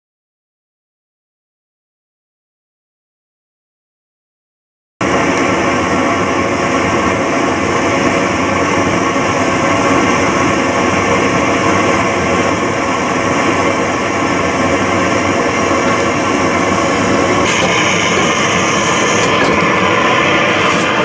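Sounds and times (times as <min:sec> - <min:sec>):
loud mechanical roar: 0:05.0 - 0:21.0
steady tonal hum: 0:05.0 - 0:21.0.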